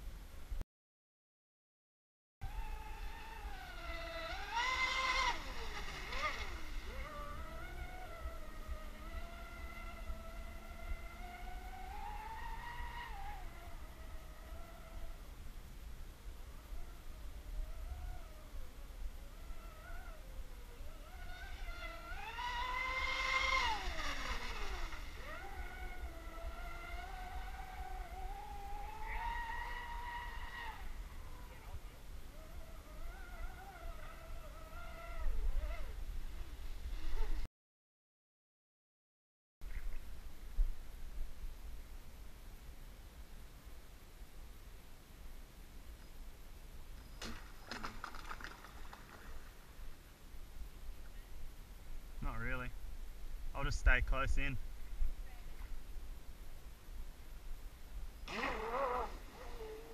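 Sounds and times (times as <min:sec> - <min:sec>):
rc boat electric motor whining: 0:02.4 - 0:15.3, 0:16.5 - 0:36.0, 0:58.2 - 0:59.9.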